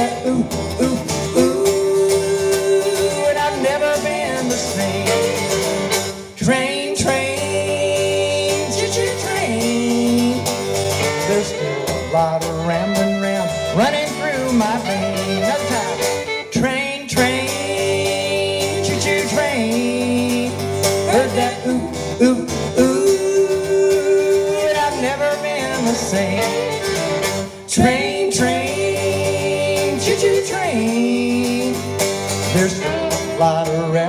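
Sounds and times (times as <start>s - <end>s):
acoustic guitar: 0.0s - 34.0s
person singing: 0.0s - 34.0s
fiddle: 1.6s - 6.3s, 7.1s - 20.6s, 24.4s - 33.8s.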